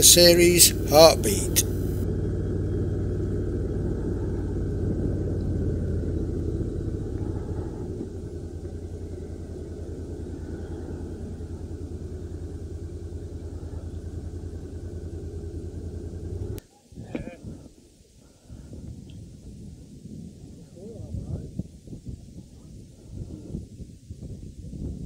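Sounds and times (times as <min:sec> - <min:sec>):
motorcycle engine idling: 0:00.0 - 0:16.6.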